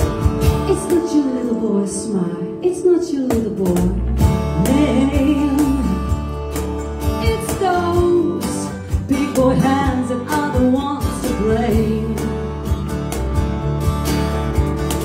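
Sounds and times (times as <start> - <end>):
drums playing: 0.0 - 1.1, 12.7 - 15.0
electric bass: 0.0 - 15.0.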